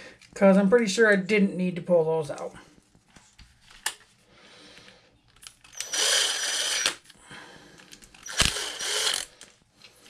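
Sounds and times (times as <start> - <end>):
cordless power driver whirring: 5.6 - 7.1, 8.1 - 9.5.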